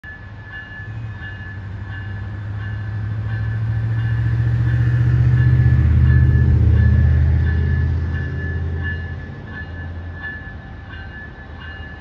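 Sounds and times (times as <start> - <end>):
diesel locomotive engine rumble: 0.0 - 12.0
bell ringing: 0.1 - 12.0.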